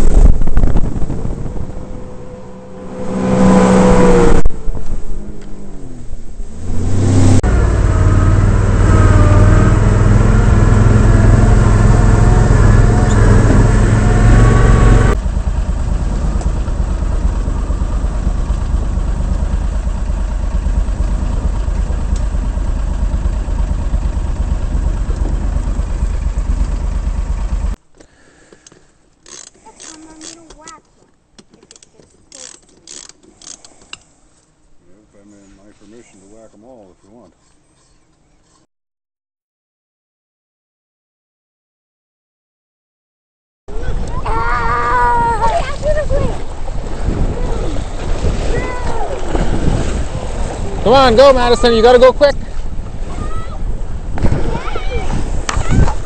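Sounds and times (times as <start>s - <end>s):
amphibious vehicle engine running: 0.0s - 27.8s, 45.7s - 54.8s
personal watercraft engine: 0.0s - 38.6s, 43.7s - 56.0s.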